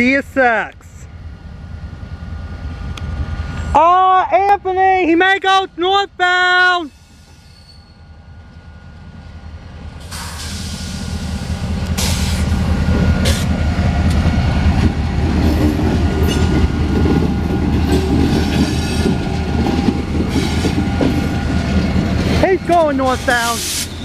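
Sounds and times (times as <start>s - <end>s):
diesel locomotive engine rumble: 0.0s - 24.0s
wheels clanking on track: 11.7s - 24.0s.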